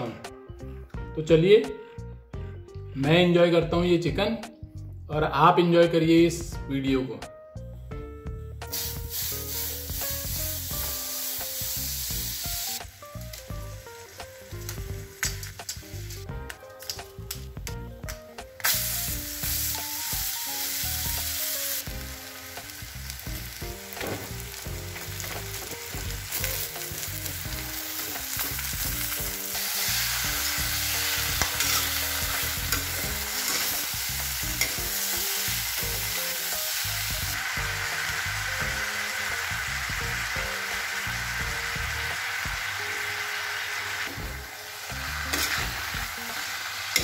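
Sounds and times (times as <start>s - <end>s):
food sizzling in hot oil: 8.6s - 17.6s, 18.6s - 47.0s.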